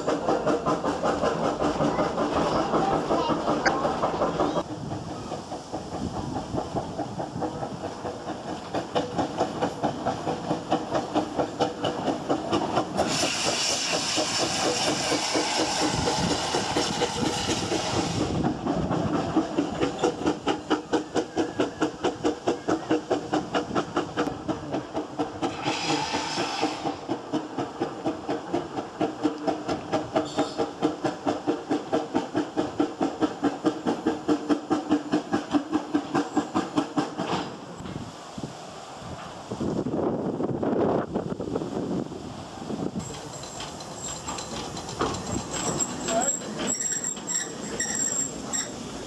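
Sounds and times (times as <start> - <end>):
steam engine exhaust chuffs: 0.0 - 37.2
loud steam hiss: 0.0 - 49.0.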